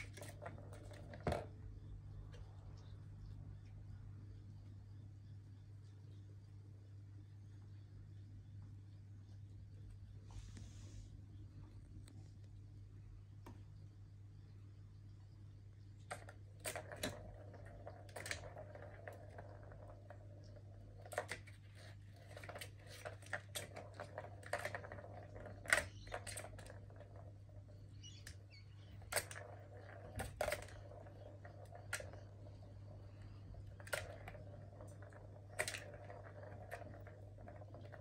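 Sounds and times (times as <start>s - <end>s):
plastic balls rolling and clattering: 0.0s - 3.4s, 16.0s - 38.0s.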